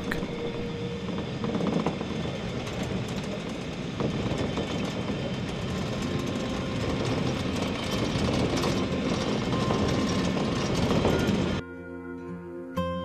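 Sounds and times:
funicular car rolling on rails: 0.0s - 11.6s.

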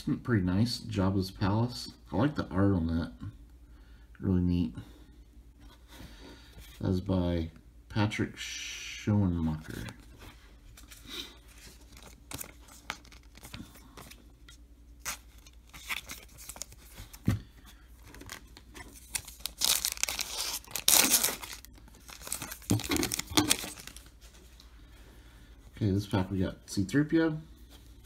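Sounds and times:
foil crinkling: 10.8s - 14.2s, 15.0s - 17.2s, 18.0s - 24.2s
foil wrapper ripping: 19.0s - 24.1s.

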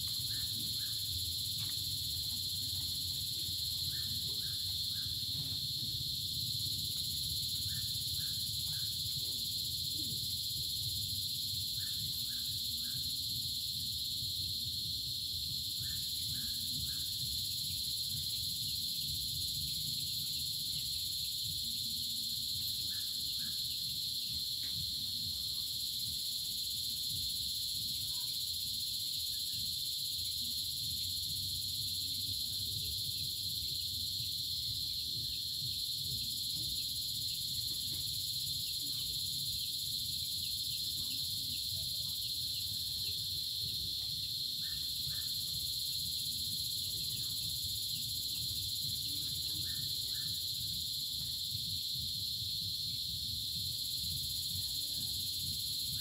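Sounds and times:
crickets and cicadas chorus: 0.0s - 56.0s.

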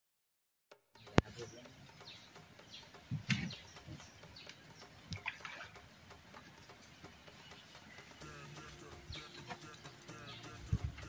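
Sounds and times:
background music: 0.7s - 11.0s
water splashing and dripping: 1.2s - 8.3s.

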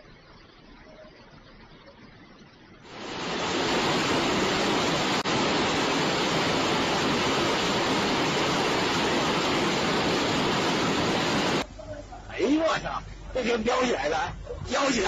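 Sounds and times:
heavy rain: 2.8s - 11.7s.

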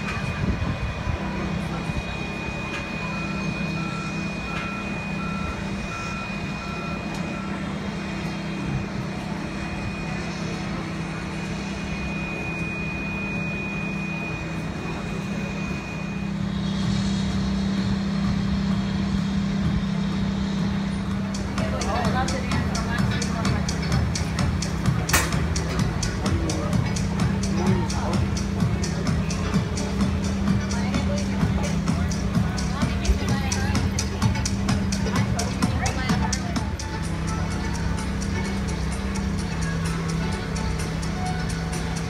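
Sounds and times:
thin high tone: 0.0s - 17.8s
heavy machinery engine rumble: 0.0s - 42.0s
reversing alarm beeping: 0.0s - 42.0s.

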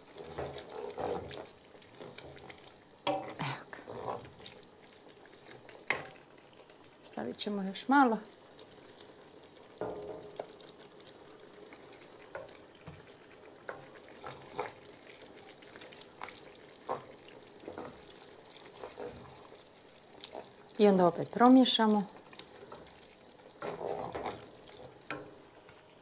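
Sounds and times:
wooden spoon scraping a pot: 0.0s - 4.6s, 11.8s - 20.6s, 22.3s - 25.3s
stew sizzling: 0.0s - 26.0s.

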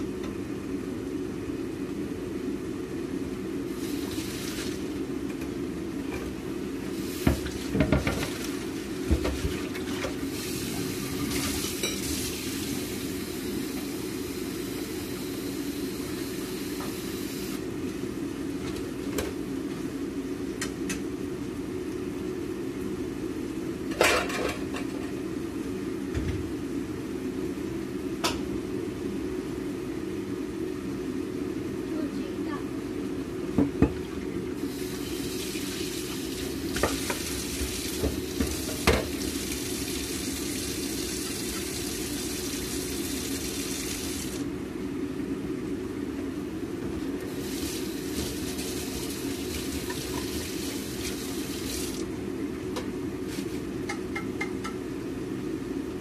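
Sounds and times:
range hood fan hum: 0.0s - 56.0s
pots and utensils clattering: 24.0s - 25.0s
tap water running into pot: 47.3s - 52.0s.

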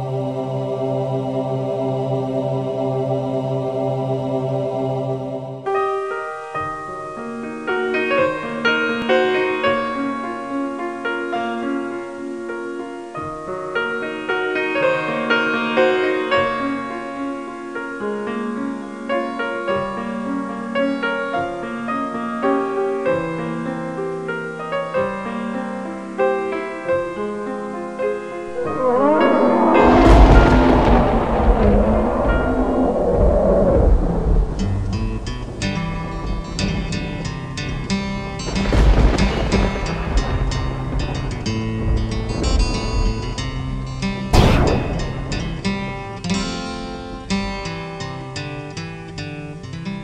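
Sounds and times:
piano music: 23.6s - 33.1s.

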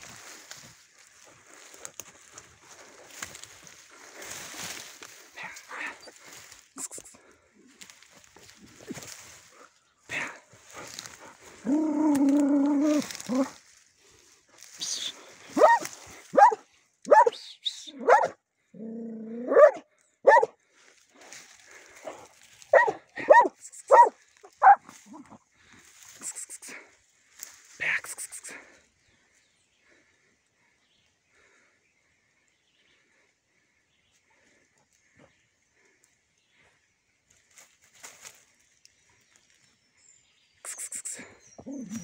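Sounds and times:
dog barking sharply: 15.6s - 15.8s, 16.4s - 17.4s, 18.0s - 18.4s, 19.5s - 20.5s, 22.7s - 24.8s.

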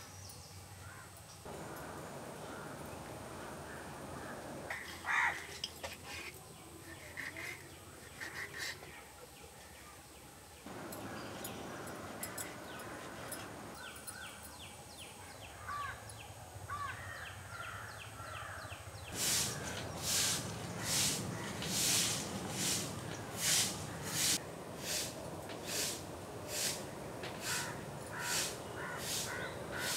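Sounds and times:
birds calling: 0.8s - 6.3s, 10.7s - 29.9s
knife scraping fish scales: 6.0s - 8.9s
broom sweeping wooden planks: 19.1s - 29.9s.

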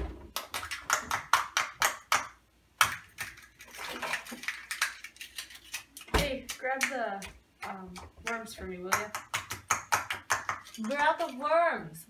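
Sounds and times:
fork beating egg in bowl: 2.8s - 11.6s.

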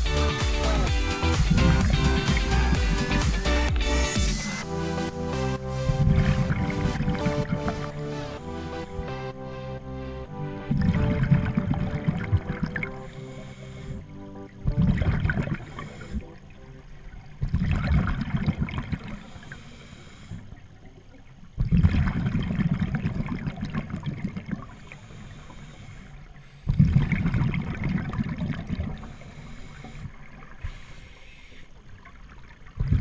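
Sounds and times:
bubbling underwater exhalations: 0.2s - 4.2s, 10.7s - 16.5s, 17.4s - 19.6s, 21.6s - 24.9s, 26.6s - 31.0s, 32.7s - 33.0s
regulator hissing inhalations: 13.0s - 14.1s, 15.6s - 16.3s, 19.2s - 20.5s, 24.7s - 26.7s, 29.0s - 31.8s.

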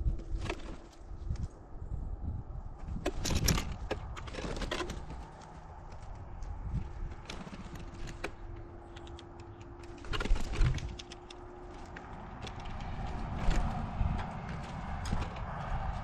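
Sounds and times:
bird wingbeats: 3.3s - 16.0s.

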